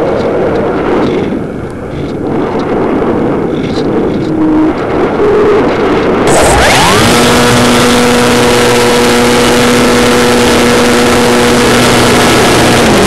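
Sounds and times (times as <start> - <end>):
airflow rushing over microphone: 0.0 - 13.0
electric motor and propeller whine: 6.0 - 13.0.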